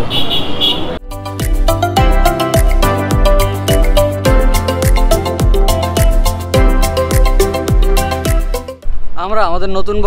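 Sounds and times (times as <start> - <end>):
melody of held notes: 1.0 - 8.8
deep bass drum: 1.1 - 8.8.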